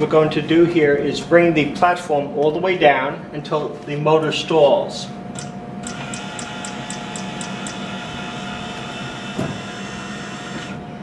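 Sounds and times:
motor humming: 0:05.2 - 0:11.0.

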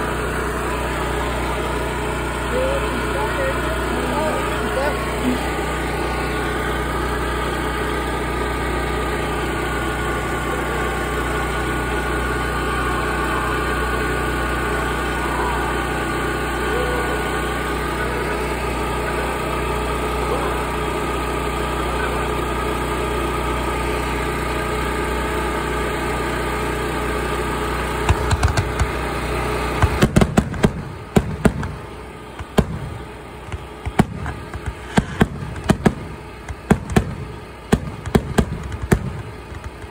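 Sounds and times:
engine idling: 0:00.0 - 0:39.9
fireworks bangs and crackles: 0:28.0 - 0:39.9.

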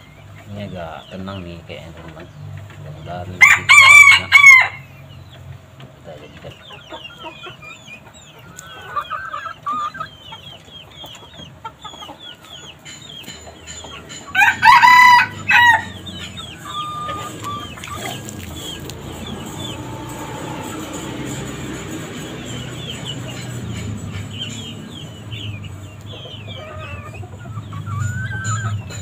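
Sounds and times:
hen clucking: 0:00.0 - 0:29.0
rooster crowing: 0:03.4 - 0:04.9, 0:14.3 - 0:17.8, 0:19.1 - 0:21.7
high chirping: 0:06.4 - 0:29.0.

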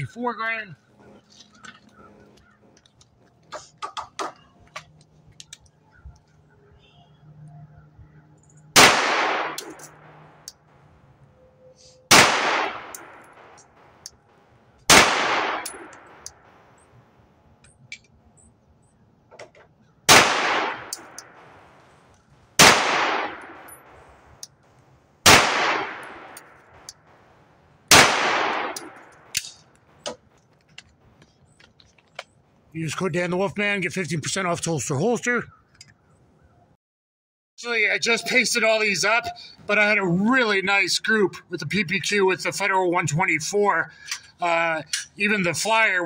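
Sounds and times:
pistol shots with echo: 0:08.7 - 0:10.2, 0:12.1 - 0:14.0, 0:14.9 - 0:16.7, 0:20.1 - 0:21.8, 0:22.6 - 0:24.0, 0:25.2 - 0:26.9, 0:27.9 - 0:29.6.

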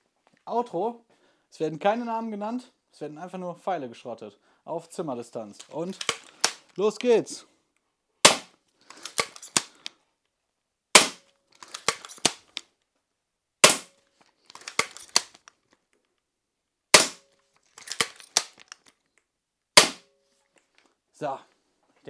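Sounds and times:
crossbow shots: 0:06.0 - 0:06.6, 0:08.2 - 0:09.7, 0:11.0 - 0:12.5, 0:13.6 - 0:14.0, 0:16.9 - 0:17.3, 0:19.8 - 0:20.1.

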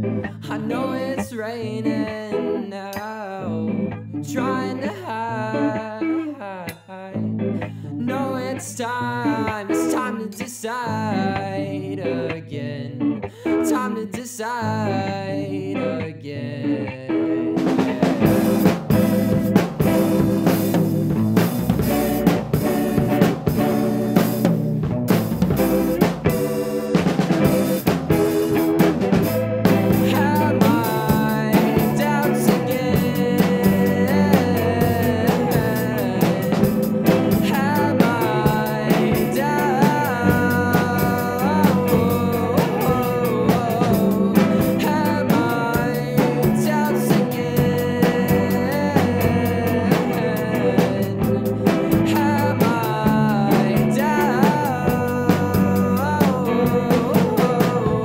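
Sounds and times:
bass and guitar: 0:00.0 - 0:58.0
indie rock song: 0:00.0 - 0:58.0
drum kit groove: 0:17.6 - 0:58.0
sliding lead melody: 0:17.6 - 0:58.0.

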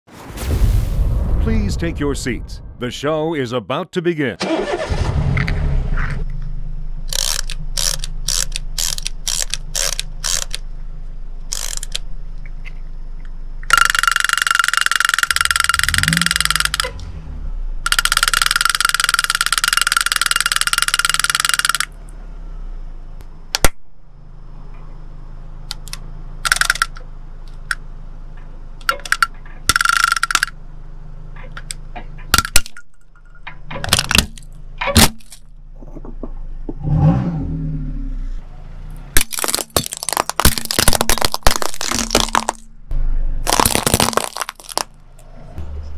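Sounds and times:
car engine idling: 0:04.4 - 0:45.9
clockwork toy clicks: 0:07.1 - 0:10.6, 0:11.5 - 0:12.0, 0:13.6 - 0:16.9, 0:17.9 - 0:21.9, 0:25.7 - 0:27.0, 0:28.8 - 0:30.5
hard plastic cracking: 0:07.1 - 0:10.6, 0:11.5 - 0:12.0, 0:39.2 - 0:42.7, 0:43.5 - 0:44.9
toy rattling on drum: 0:07.1 - 0:10.6, 0:13.7 - 0:16.9, 0:17.9 - 0:21.9, 0:26.5 - 0:27.0, 0:28.9 - 0:30.6.

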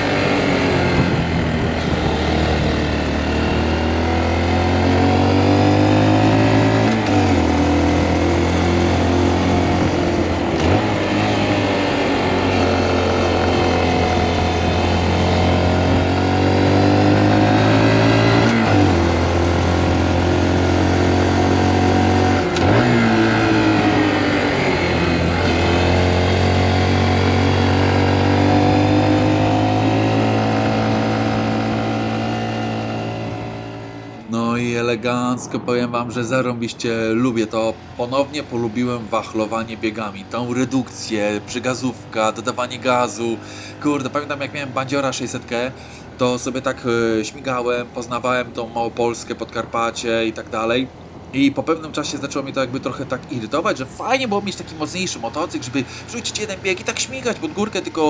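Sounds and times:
throttle blips on downshifts: 0:00.0 - 0:34.5
motorcycle engine under load: 0:00.0 - 0:34.8, 0:37.4 - 0:58.0.

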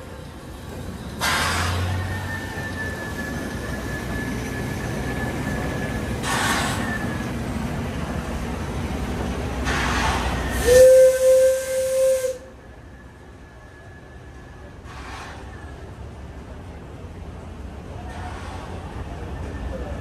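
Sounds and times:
steam locomotive venting steam: 0:00.0 - 0:16.5, 0:17.9 - 0:19.9
steam whistle blast: 0:09.9 - 0:12.6.

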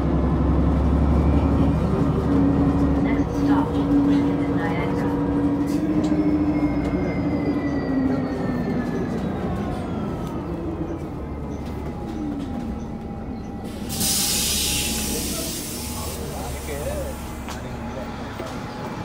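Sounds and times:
bus engine rumble and whine: 0:00.0 - 0:19.0
compressed air hiss: 0:13.7 - 0:16.6.

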